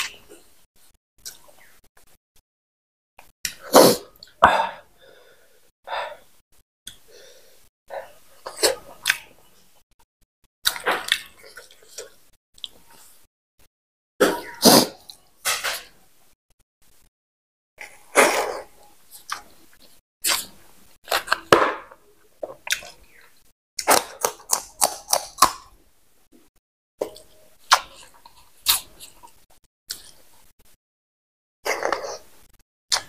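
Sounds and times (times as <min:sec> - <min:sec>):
person chewing: 0:17.8 - 0:25.8, 0:27.0 - 0:30.3.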